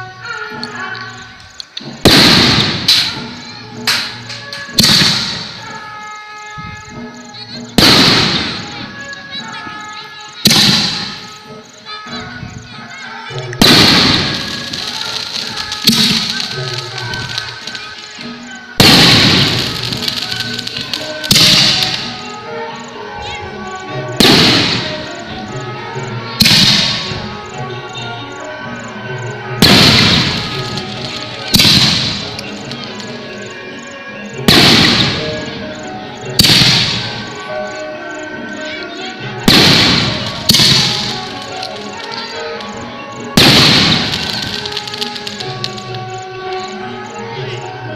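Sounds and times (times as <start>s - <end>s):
background music: 0.0s - 47.9s
insects chirping: 0.0s - 47.9s
firework launch bang: 2.0s - 3.3s, 3.9s - 5.7s, 7.8s - 8.8s, 10.4s - 11.4s, 13.6s - 17.9s, 18.8s - 22.3s, 24.2s - 25.1s, 26.4s - 27.2s, 29.6s - 32.8s, 34.5s - 35.6s, 36.4s - 37.4s, 39.5s - 42.4s, 43.4s - 45.9s.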